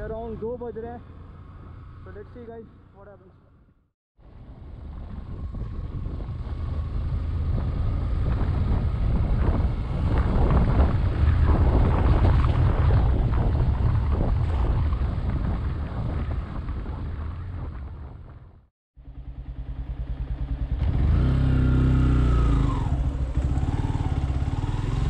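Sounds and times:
wind buffeting microphone: 0:04.2 - 0:18.6
motorcycle engine running: 0:04.3 - 0:25.0.

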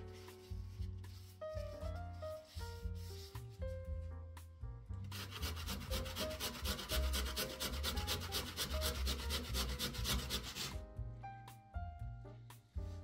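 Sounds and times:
potato grated on metal grater: 0:05.1 - 0:10.8.

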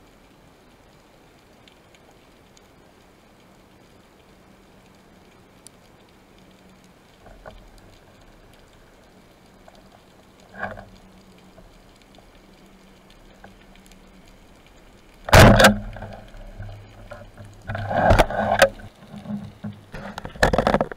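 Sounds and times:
muffled underwater hiss: 0:00.0 - 0:20.9
speargun shot thump: 0:15.3 - 0:15.7
knocks and rubbing against speargun: 0:17.1 - 0:20.9.

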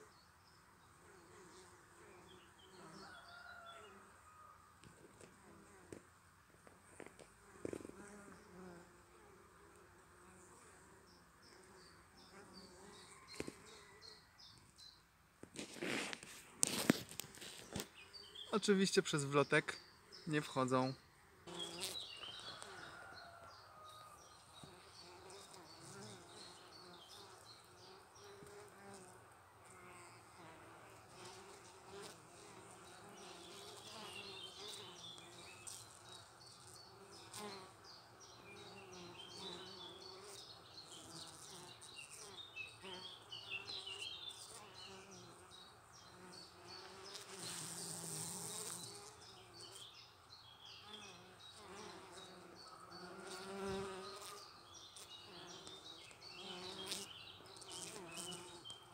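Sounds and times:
bees buzzing: 0:21.4 - 0:23.1, 0:24.6 - 0:50.0, 0:50.6 - 0:58.9.

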